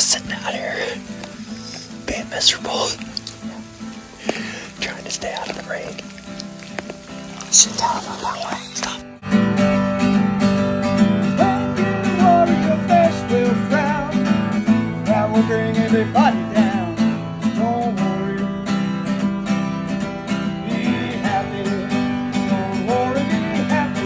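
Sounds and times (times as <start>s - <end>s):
acoustic guitar strumming: 0.0s - 24.0s
person singing: 11.2s - 14.2s, 20.5s - 24.0s.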